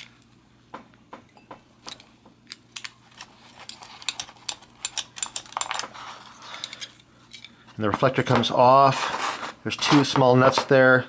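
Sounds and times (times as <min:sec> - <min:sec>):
wrench clicking on metal: 0:02.8 - 0:05.8.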